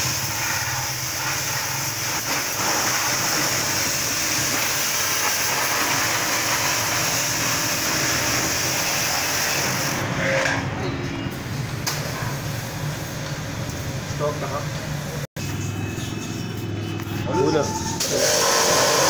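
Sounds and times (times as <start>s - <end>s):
pressure washer spray hiss: 0.0s - 10.0s, 18.0s - 19.0s.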